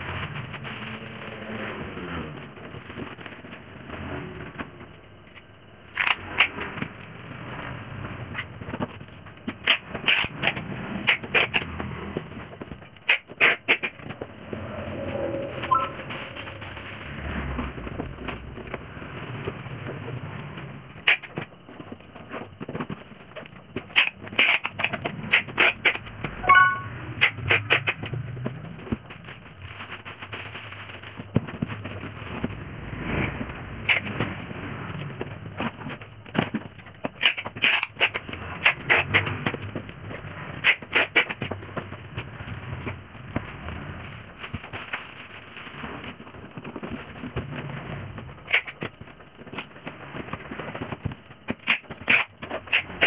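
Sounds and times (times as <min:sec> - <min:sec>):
brief squeak: 0:15.5 - 0:16.1
plastic bags crinkling: 0:29.1 - 0:31.9.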